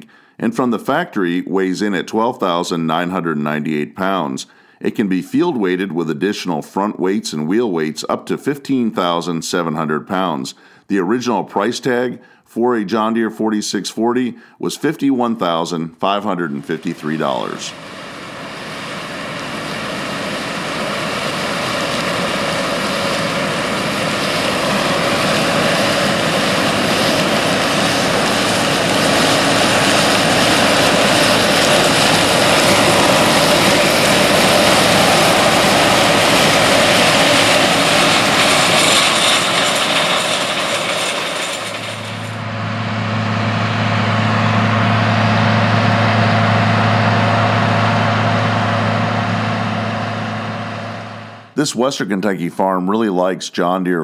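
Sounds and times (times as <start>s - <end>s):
combine harvester running: 16.2s - 51.6s
deep tractor engine drone: 16.2s - 51.6s
corn pouring from auger: 16.7s - 42.4s.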